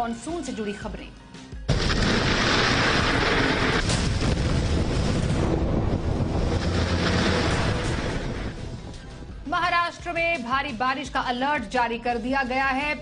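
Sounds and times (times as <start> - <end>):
heavy rain and floodwater rushing: 1.8 - 9.3.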